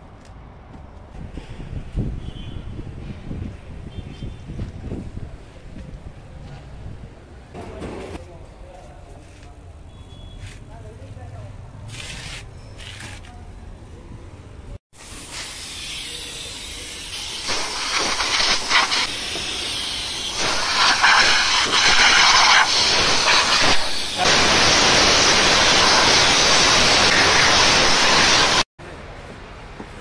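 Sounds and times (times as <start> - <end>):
compressed air blow gun hissing: 15.0 - 28.7.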